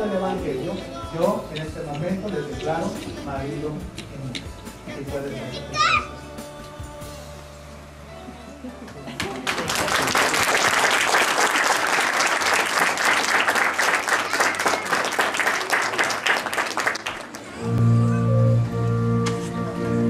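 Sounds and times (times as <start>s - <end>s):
congregation applauding: 9.2s - 17.6s
music with sustained low notes: 17.6s - 20.0s.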